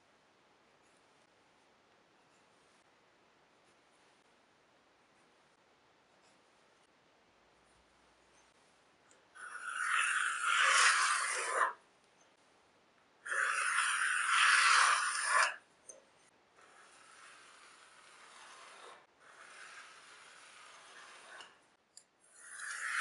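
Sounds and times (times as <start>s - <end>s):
pencil scratching on plywood: 9.4s - 11.8s, 16.6s - 21.6s.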